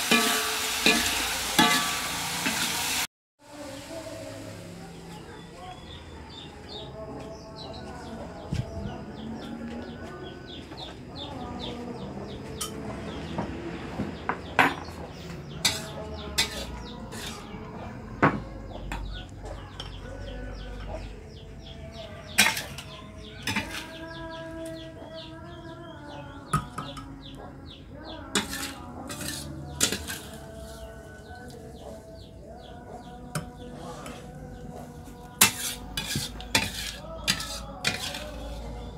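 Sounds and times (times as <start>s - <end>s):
metal spatula scraping a wok: 0.0s - 3.0s, 15.6s - 17.6s, 22.3s - 24.0s, 28.3s - 31.5s, 35.3s - 38.9s.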